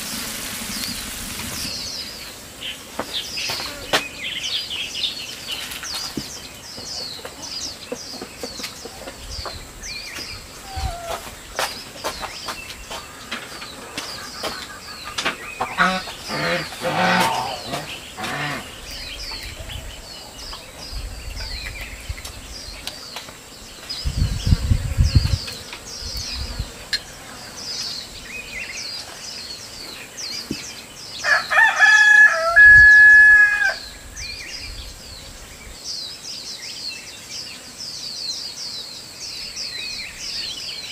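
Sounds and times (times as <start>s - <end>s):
small birds chirping: 0.0s - 40.9s
chickens clucking: 6.8s - 19.7s
rooster crowing: 31.2s - 33.9s.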